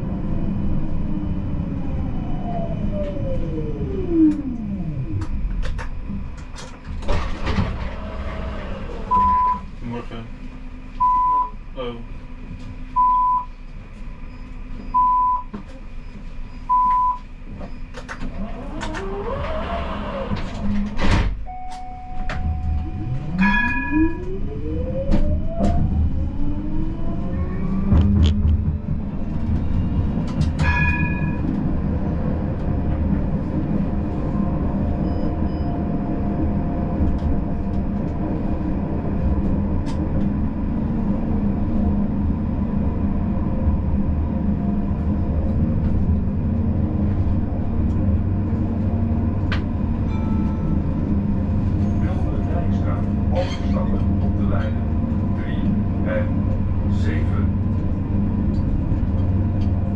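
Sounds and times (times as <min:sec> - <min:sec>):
tram rumble and rising whine: 0:00.0 - 0:59.9
short tram beeps: 0:09.1 - 0:09.7, 0:11.0 - 0:11.6, 0:13.0 - 0:13.6, 0:14.2 - 0:15.5, 0:16.6 - 0:17.9, 0:21.4 - 0:24.2.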